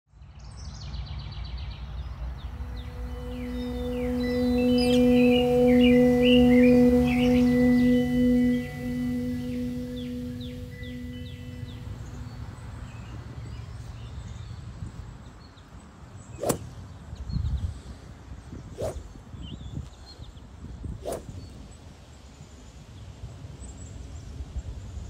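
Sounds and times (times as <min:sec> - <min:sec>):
golf club swishing through air: 0:16.4 - 0:16.8, 0:21.0 - 0:21.4.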